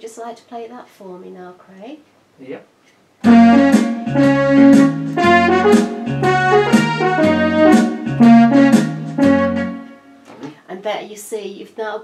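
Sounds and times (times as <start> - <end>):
electronic keyboard blues: 3.2 - 10.3.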